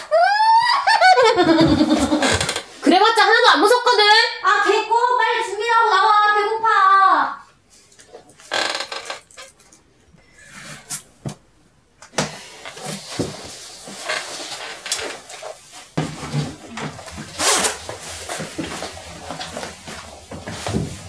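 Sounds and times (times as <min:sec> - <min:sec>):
rustling and shuffling: 0:12.4 - 0:21.0.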